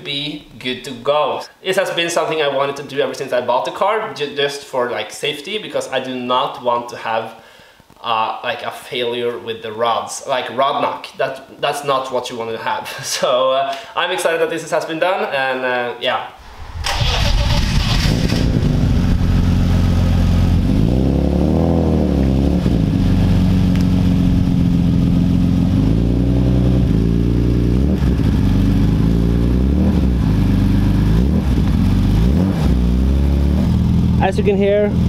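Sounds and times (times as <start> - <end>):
car engine idling and revving: 16.8 - 35.0.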